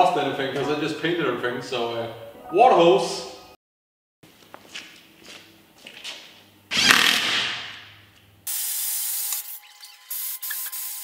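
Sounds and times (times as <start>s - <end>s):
water hose spraying: 8.5s - 11.0s.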